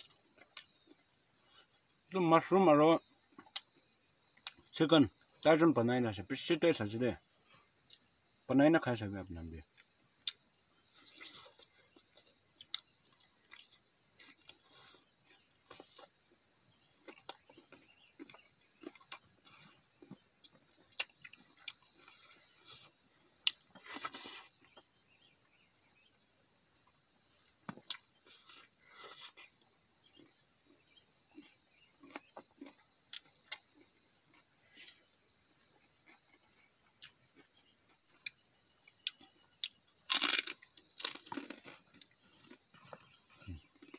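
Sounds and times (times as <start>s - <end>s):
insects chirring: 0.0s - 43.9s
people eating by hand: 9.6s - 16.3s, 17.0s - 24.9s, 35.8s - 43.9s.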